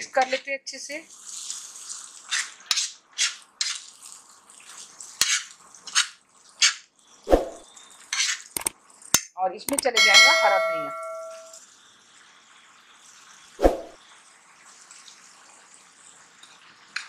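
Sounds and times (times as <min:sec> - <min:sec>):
metal spatula scraping pan: 0:02.3 - 0:03.8, 0:05.2 - 0:06.8, 0:07.4 - 0:08.5
spatula striking pan: 0:09.7 - 0:11.6.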